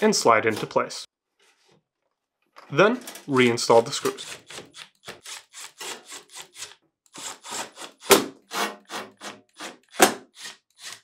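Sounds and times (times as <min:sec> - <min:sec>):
cordless drill driving screws: 0:04.2 - 0:11.0.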